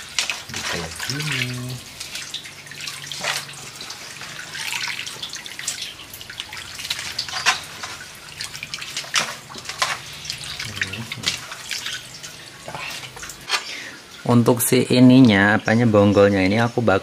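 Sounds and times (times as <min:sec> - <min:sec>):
liquid splashing into a bowl: 0:00.0 - 0:14.3.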